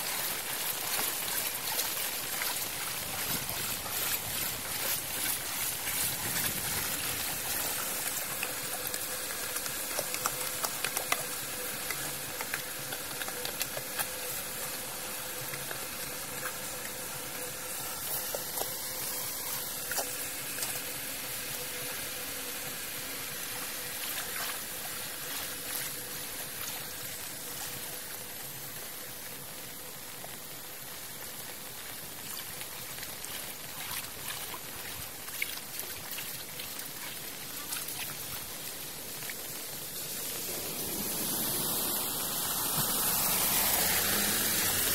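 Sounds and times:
small splashes and clicks: 0.0s - 20.9s, 23.6s - 41.2s
floodwater hissing: 0.0s - 44.9s.

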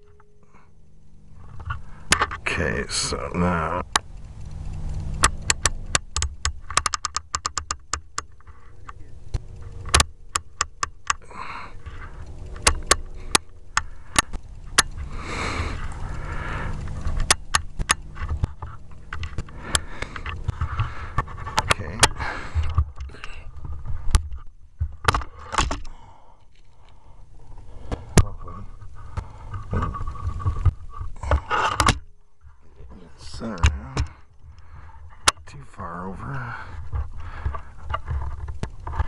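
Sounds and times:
quick run of small clicks: 1.4s - 35.5s
rifle handling clicks and knocks: 4.9s - 15.1s, 16.7s - 32.1s.

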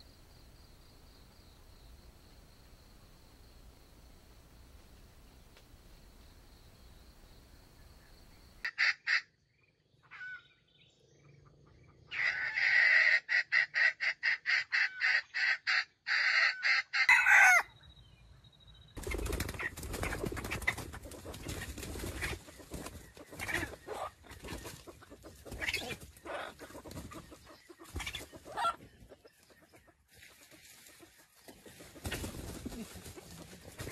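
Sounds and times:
junglefowl clucking: 8.6s - 9.4s, 10.0s - 10.5s, 12.1s - 17.7s, 19.5s - 33.9s
crackling rustling noise: 30.1s - 33.9s.

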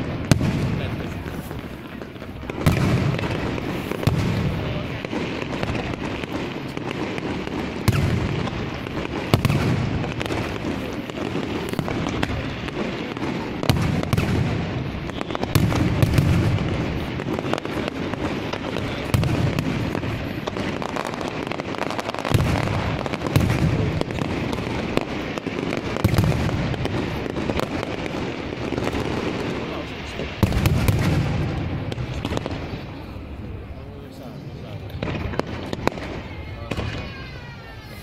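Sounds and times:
fireworks booming: 0.0s - 38.0s
fireworks crackling: 0.0s - 38.0s.

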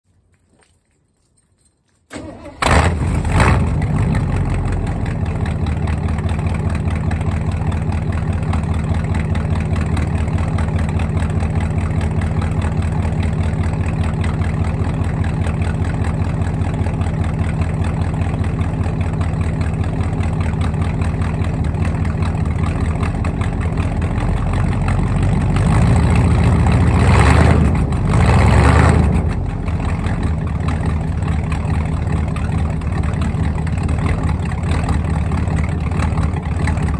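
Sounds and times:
engine starting and idling: 2.1s - 36.9s
engine revving: 2.2s - 5.1s, 24.0s - 30.5s.

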